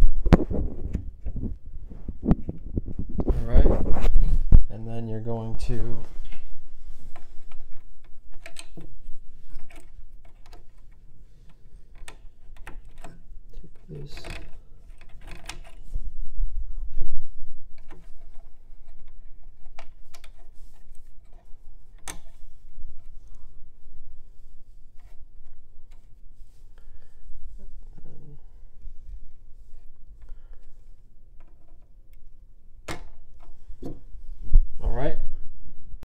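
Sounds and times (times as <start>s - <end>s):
plastic clicks and rattles: 7.1s - 15.8s, 17.7s - 22.4s.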